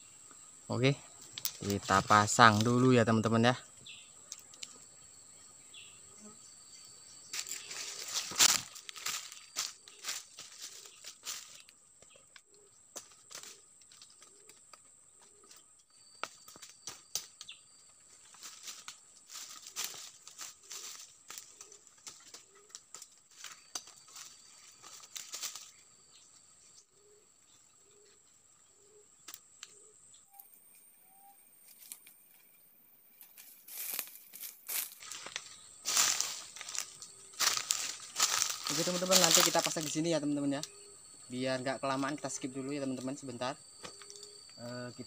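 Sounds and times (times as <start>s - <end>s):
twigs and leaves rustling: 0.8s - 4.9s, 7.2s - 30.8s, 31.6s - 45.0s
branches cracking: 1.3s - 2.9s, 7.3s - 25.8s, 31.6s - 32.4s, 33.2s - 40.9s, 43.8s - 44.5s
steady high hiss: 30.3s - 45.0s.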